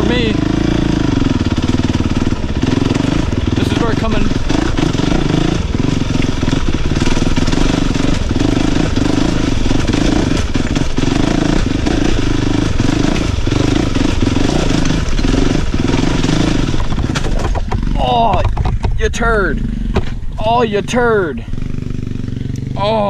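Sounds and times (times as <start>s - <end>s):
dirt bike engine under load: 1.2s - 23.0s.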